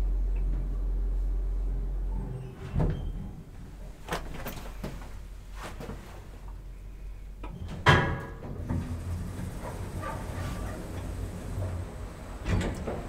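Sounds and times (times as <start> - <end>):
elevator humming: 7.4 - 13.0
elevator thump: 7.8 - 13.0.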